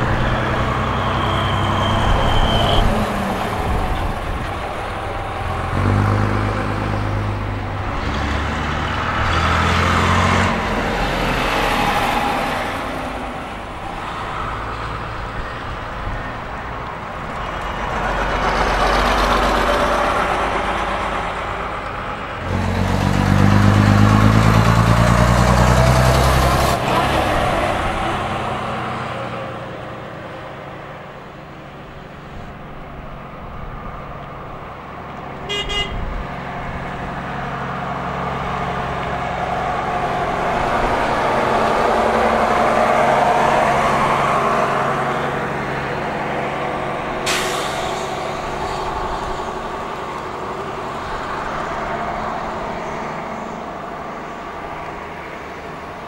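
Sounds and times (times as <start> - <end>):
buses driving past: 0.0 - 56.0
high horn toot: 35.4 - 36.1.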